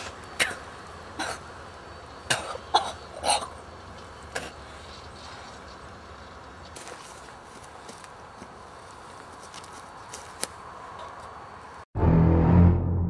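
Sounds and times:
girl coughing and choking: 0.4 - 1.5, 2.3 - 3.6.

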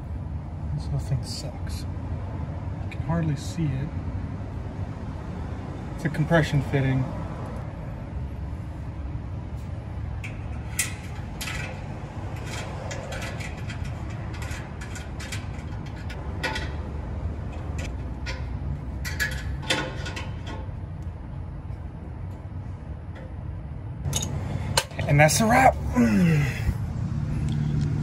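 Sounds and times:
steady low rumble: 7.2 - 28.0.

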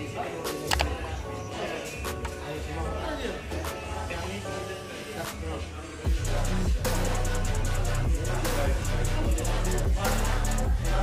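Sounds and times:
hi-hat pattern: 6.0 - 11.0
beat with sliding bass: 6.1 - 11.0.

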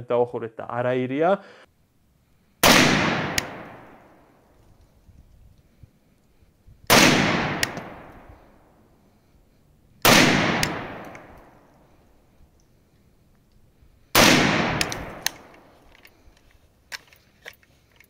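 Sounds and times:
rifle shots echoing: 2.6 - 4.4, 6.9 - 8.7, 10.0 - 11.7, 14.1 - 15.8
sharp click: 14.8 - 16.2.

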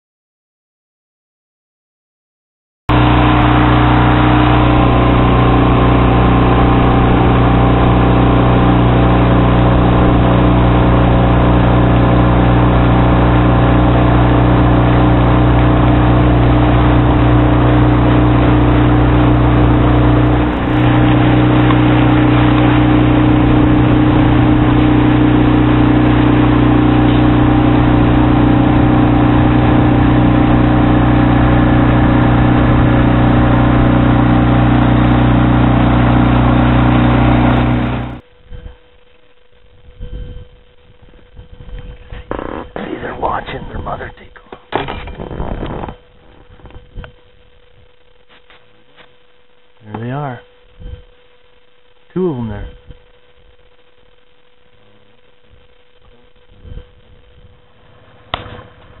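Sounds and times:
outboard motor running: 2.9 - 38.6
boat through choppy water: 3.0 - 38.2.

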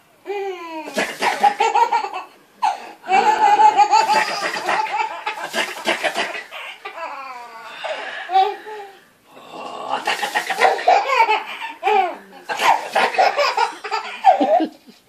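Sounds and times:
baby belly-laughing: 0.7 - 7.6, 9.9 - 14.8.

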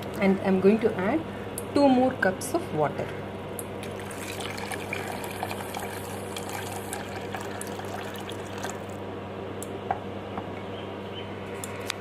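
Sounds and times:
steady low hum: 0.0 - 12.0
water pouring from a jug: 3.8 - 9.0.

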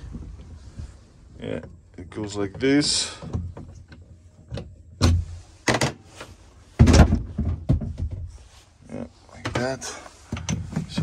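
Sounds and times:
bunk bed thumps: 6.7 - 8.4.

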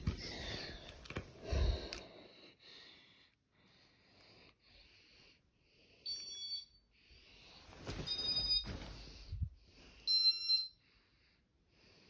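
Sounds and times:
rustling handling noise: 7.6 - 9.4
short electronic beeps: 8.1 - 8.7.

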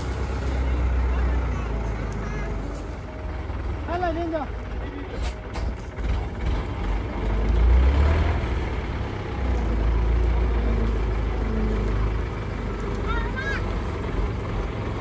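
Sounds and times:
truck engine rumble: 0.0 - 15.0.

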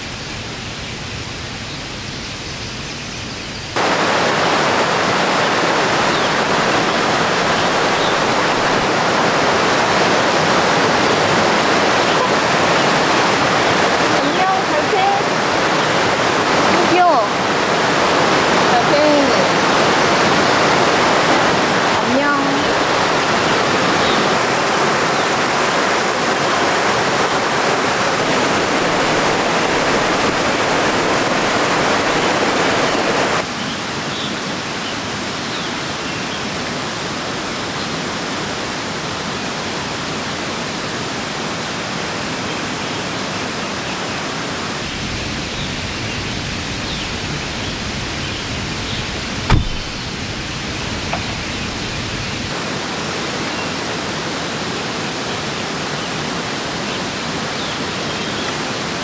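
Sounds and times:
stream rushing over rocks: 0.0 - 59.0
sharp knock: 49.5 - 50.0.

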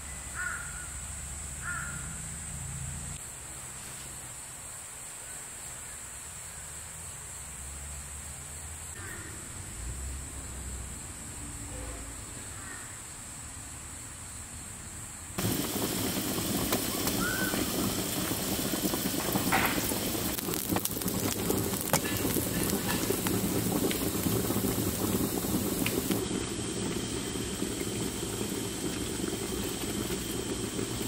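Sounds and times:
steady high hiss: 0.0 - 31.0
rain falling: 15.4 - 31.0
faint bird chirps: 16.9 - 17.9.

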